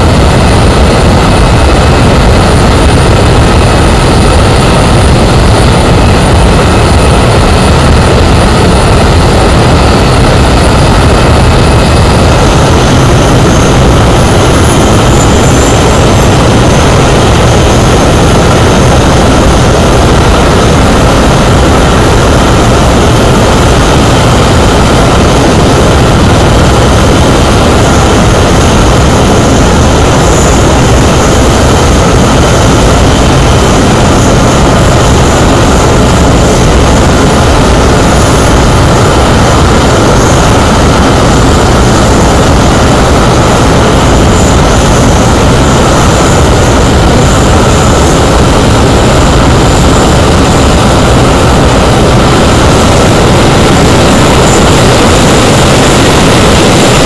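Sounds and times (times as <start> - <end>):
loud steady jet roar: 0.0 - 57.0.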